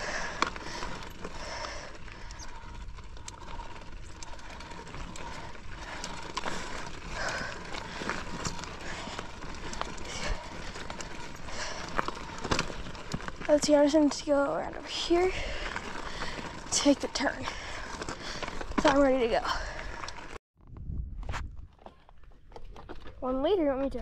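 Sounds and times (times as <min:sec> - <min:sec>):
bike drivetrain clicking: 0:00.0 - 0:24.0
steady trail noise: 0:00.0 - 0:24.0
tyres on rocky ground: 0:00.0 - 0:24.0.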